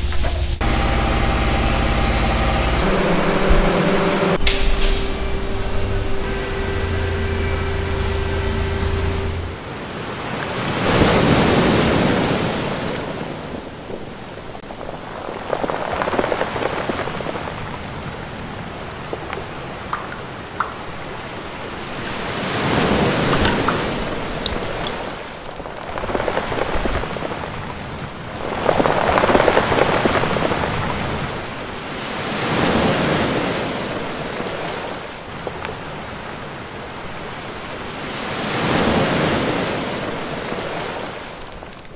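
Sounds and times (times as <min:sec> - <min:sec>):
sea waves washing in: 0:00.0 - 0:41.9
steady machine hum: 0:00.6 - 0:09.8.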